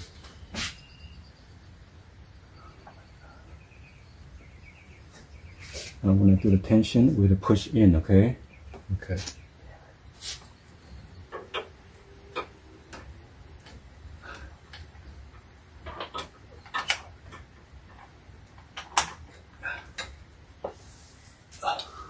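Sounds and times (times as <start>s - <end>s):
metal clicks and knocks: 11.3s - 13.8s, 14.7s - 20.2s.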